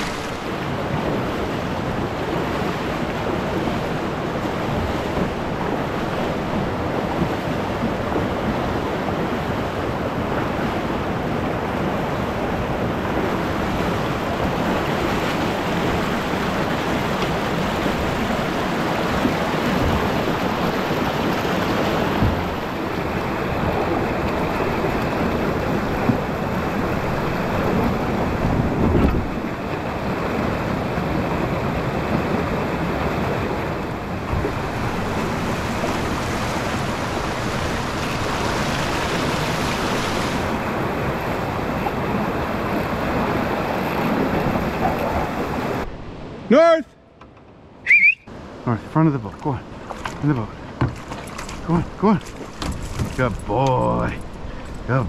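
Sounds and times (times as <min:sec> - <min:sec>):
river rapids rushing: 0:00.0 - 0:46.8
canoe knocks: 0:14.3 - 0:29.8, 0:34.2 - 0:36.2, 0:49.9 - 0:53.8.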